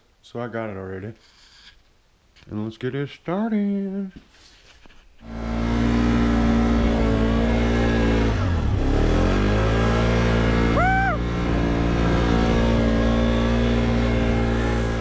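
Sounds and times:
atv engine revving: 5.2s - 15.0s
person whooping shout: 10.7s - 11.3s.

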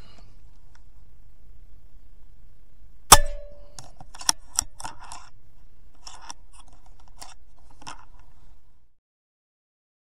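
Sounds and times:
air rifle shot cracking: 3.1s - 3.7s.

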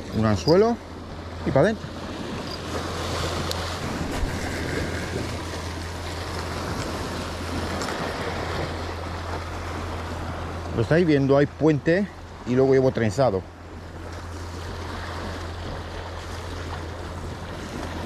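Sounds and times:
surf washing against rocks: 0.0s - 18.0s.

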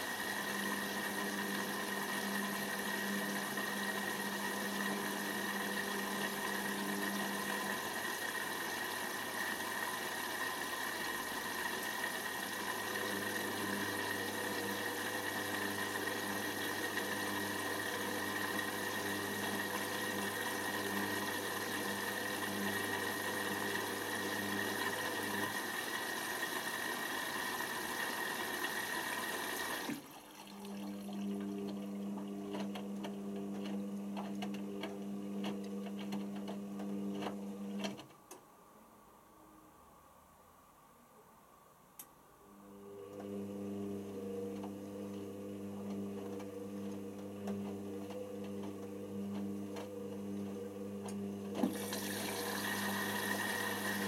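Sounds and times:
water hissing into washing machine: 0.0s - 32.5s, 51.6s - 54.0s
washing machine motor whirring: 0.0s - 38.1s, 42.5s - 54.0s.

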